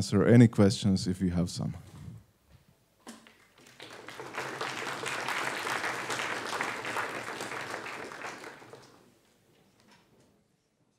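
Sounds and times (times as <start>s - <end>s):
audience applauding: 3.3s - 9.1s.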